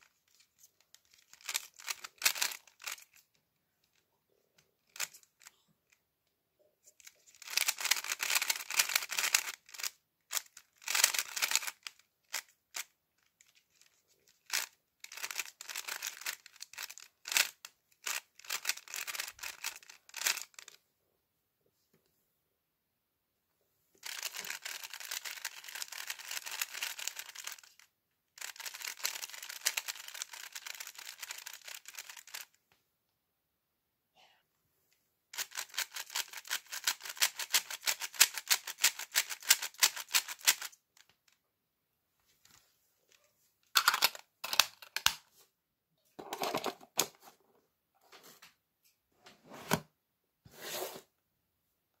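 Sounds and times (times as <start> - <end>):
puzzle cube plastic clicking: 0.3 - 3.3, 7.0 - 20.8, 24.0 - 32.5, 35.4 - 41.2, 43.8 - 45.2.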